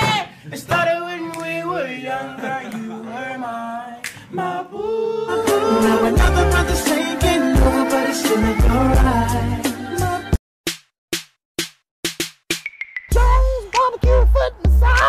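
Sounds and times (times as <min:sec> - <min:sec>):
person singing: 0:00.8 - 0:10.4, 0:13.1 - 0:15.0
music with heavy bass beat: 0:05.5 - 0:10.3, 0:11.6 - 0:15.0.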